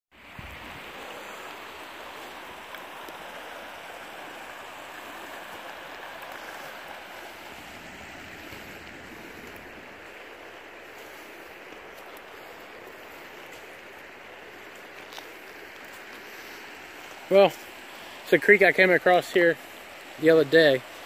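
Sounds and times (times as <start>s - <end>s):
creek water running over rocks: 0.1s - 21.0s.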